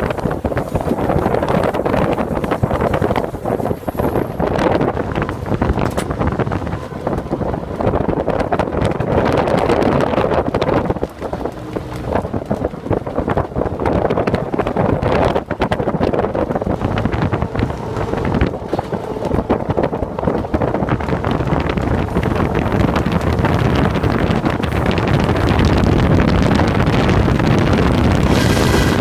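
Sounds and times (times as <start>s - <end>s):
rapid flapping and rattling: 0.0s - 29.0s
wind rushing over microphone: 0.0s - 29.0s.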